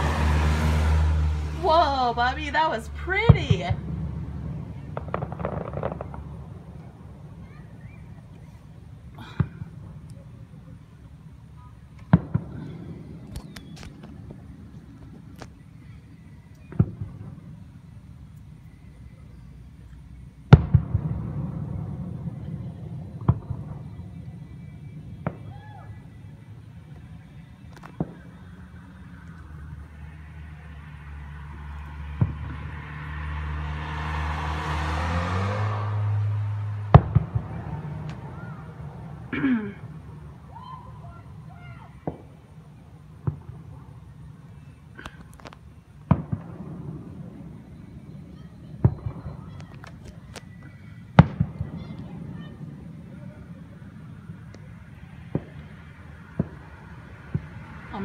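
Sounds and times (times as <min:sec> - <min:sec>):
low rumble: 0:00.0 - 0:15.8
fireworks bangs: 0:00.0 - 0:58.0
small firework pops: 0:04.8 - 0:08.5, 0:12.0 - 0:15.6, 0:16.5 - 0:17.4, 0:20.5 - 0:21.8, 0:23.2 - 0:23.9, 0:26.9 - 0:28.5, 0:36.9 - 0:38.5, 0:42.0 - 0:42.4, 0:43.2 - 0:43.7, 0:45.0 - 0:46.9, 0:48.8 - 0:52.5, 0:55.3 - 0:56.7.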